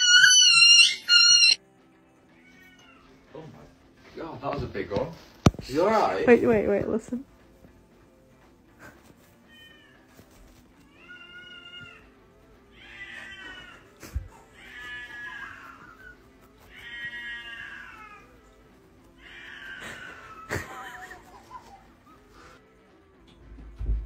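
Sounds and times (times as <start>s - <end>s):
cat yowling: 0.0s - 1.6s, 9.5s - 22.3s.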